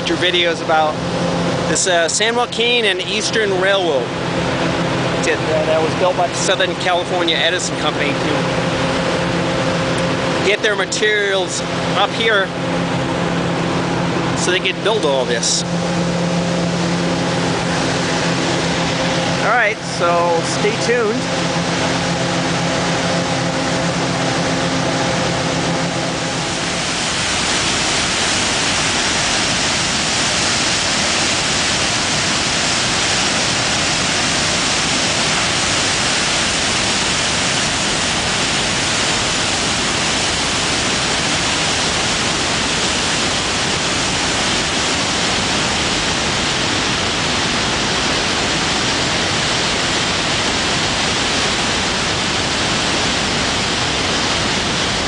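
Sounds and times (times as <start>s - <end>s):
machine hum: 0.0s - 55.0s
water pouring over spillway: 26.6s - 55.0s.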